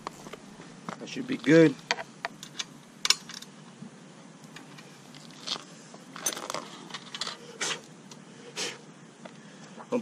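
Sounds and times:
small metal hardware clinking: 1.8 - 3.5, 4.5 - 7.4.

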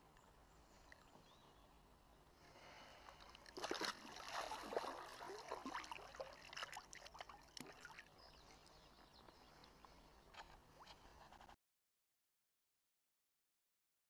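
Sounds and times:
water dripping: 3.2 - 8.1
hands splashing in water: 3.3 - 8.1.

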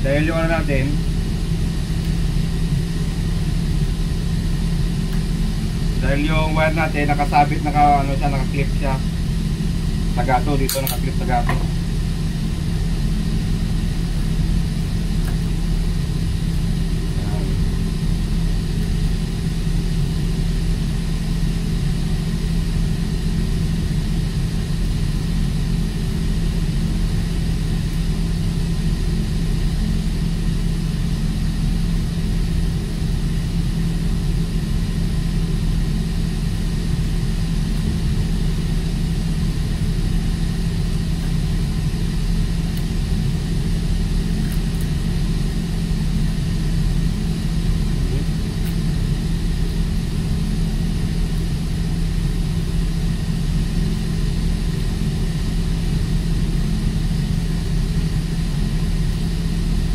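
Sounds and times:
heavy machinery droning: 0.0 - 20.4.

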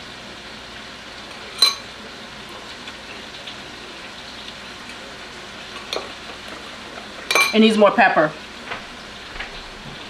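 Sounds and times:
fish sizzling in a pan: 0.0 - 10.0
metal spoon clinking glass bowl: 1.6 - 1.8, 7.3 - 7.6.

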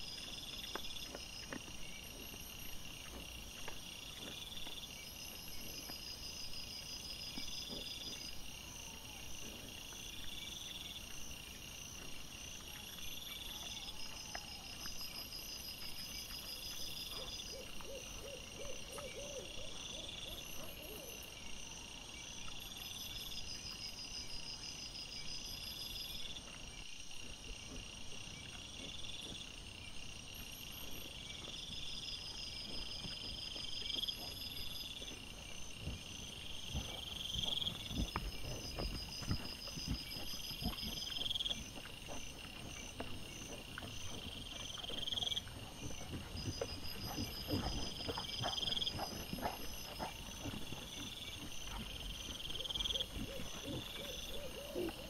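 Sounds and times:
insects chirping: 0.0 - 55.0
low hoot-like calls: 17.1 - 21.4, 52.5 - 55.0.

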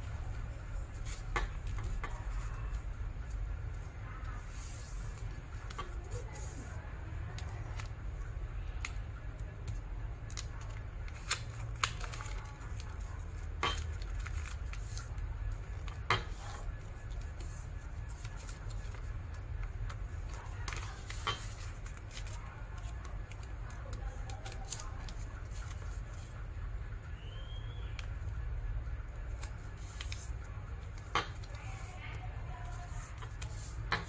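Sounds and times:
steady low hum: 0.0 - 34.0
paper being folded and creased: 0.9 - 26.6, 29.0 - 34.0.

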